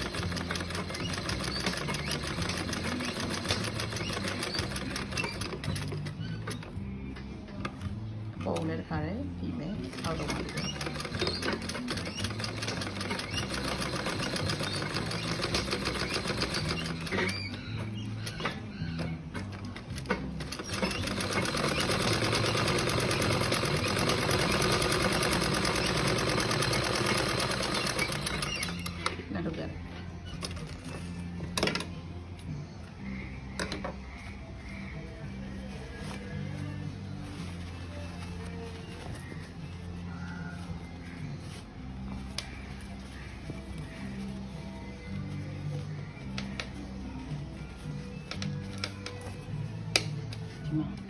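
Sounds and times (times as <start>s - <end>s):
sewing machine stitching: 0.0s - 6.1s, 9.8s - 17.3s, 20.4s - 29.2s.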